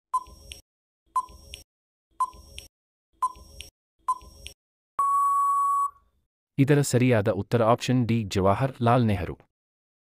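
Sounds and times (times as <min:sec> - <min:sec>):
long steady beep: 0:05.0 - 0:06.0.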